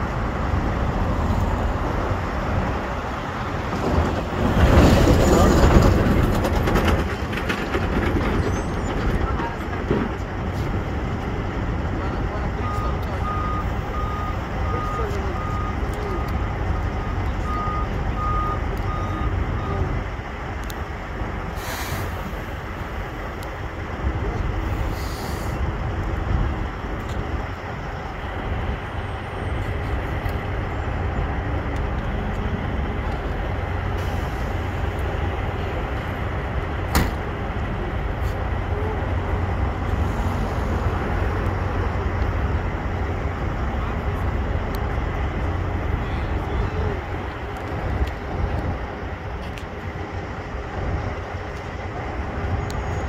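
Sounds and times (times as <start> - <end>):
diesel truck engine idling: 8.4 - 53.0
reversing beeper: 12.5 - 19.9
air hissing: 21.6 - 22.4.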